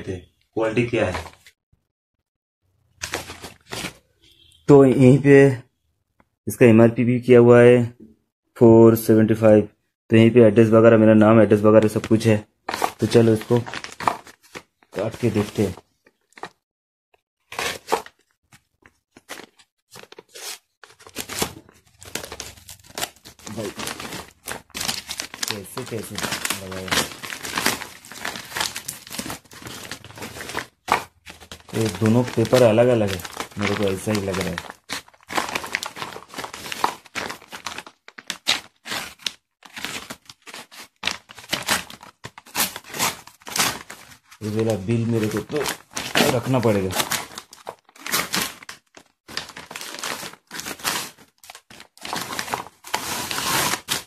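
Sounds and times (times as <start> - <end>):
box cutter slitting paper: 17.4 - 18.2, 34.4 - 44.0, 49.5 - 54.0
wrapping paper being cut and torn: 17.4 - 18.4, 19.2 - 54.0.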